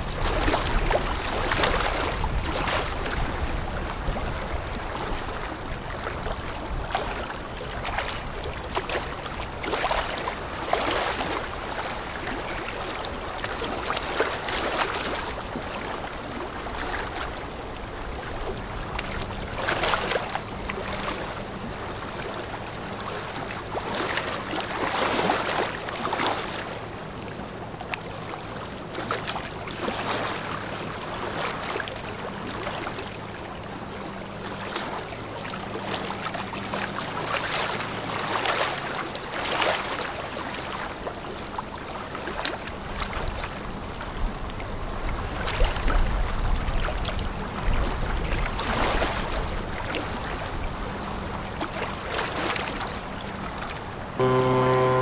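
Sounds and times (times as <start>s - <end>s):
low engine hum: 49.2s - 55.0s.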